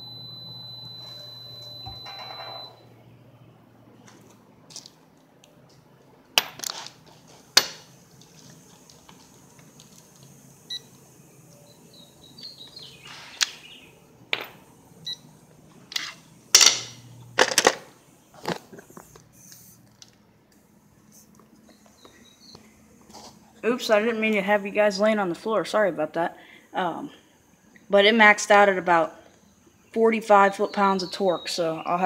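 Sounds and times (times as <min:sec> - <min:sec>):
metal tools clinking: 0:02.0 - 0:02.7.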